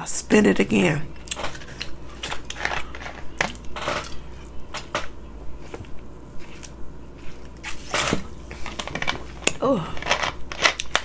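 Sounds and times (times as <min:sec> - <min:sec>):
chewing and mouth noises: 0:05.6 - 0:07.9.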